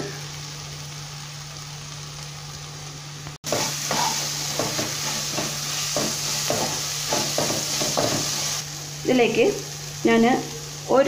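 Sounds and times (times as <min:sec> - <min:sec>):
onions sizzling in hot oil: 0:00.0 - 0:11.0
spatula stirring and scraping: 0:03.5 - 0:08.4.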